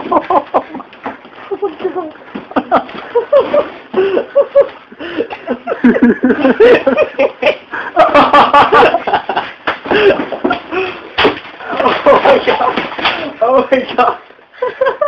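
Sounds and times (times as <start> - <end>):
bodies bumping on floor: 0.0 - 4.9, 8.0 - 14.0
people laughing: 0.0 - 11.0, 11.6 - 15.0.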